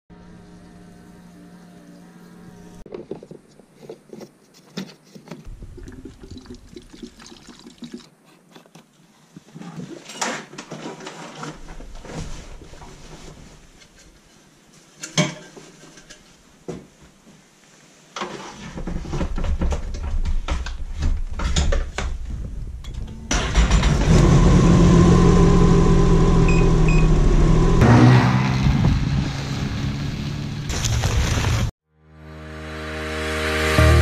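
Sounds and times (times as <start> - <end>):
fuel gurgling through a hose: 5.5 - 8.1.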